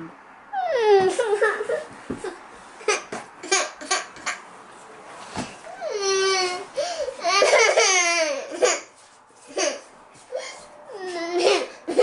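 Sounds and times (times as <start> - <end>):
girl crying and wailing: 0.6 - 1.8, 5.8 - 8.6
child sobbing: 0.6 - 2.4, 5.8 - 8.7, 9.6 - 12.0.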